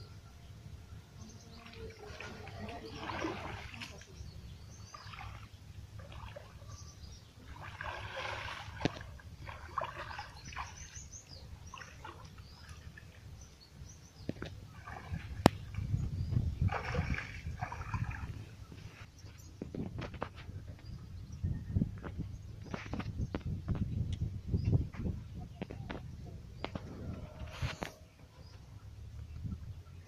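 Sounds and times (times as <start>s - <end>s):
birds chirping: 0.0s - 30.0s
shallow water splashing: 1.5s - 19.0s.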